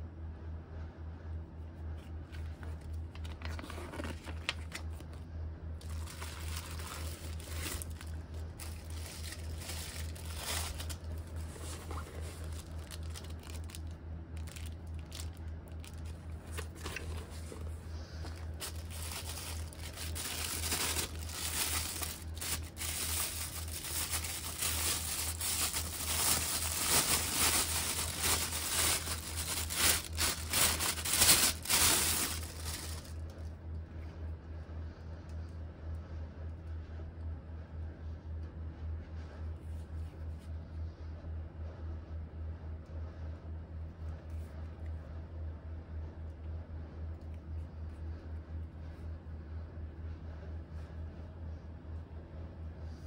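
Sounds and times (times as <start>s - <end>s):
low hum: 0.2s - 53.0s
paper rustling: 2.0s - 5.2s, 5.8s - 33.2s
plastic packaging crinkling: 2.2s - 5.2s, 5.8s - 33.3s.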